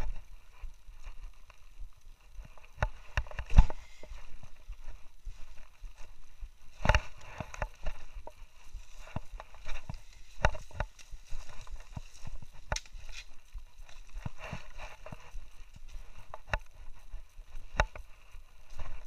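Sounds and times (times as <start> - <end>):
branches rustling and scraping: 0.0 - 19.0
footsteps on rocky trail: 0.0 - 19.0.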